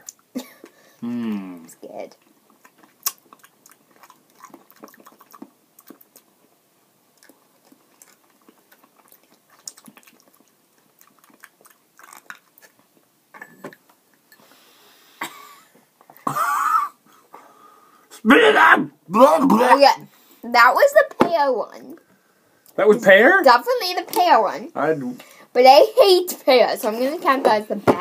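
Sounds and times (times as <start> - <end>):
people chewing: 0.0 - 6.5, 7.1 - 14.8
short vocal cry: 1.0 - 1.7, 18.2 - 19.9.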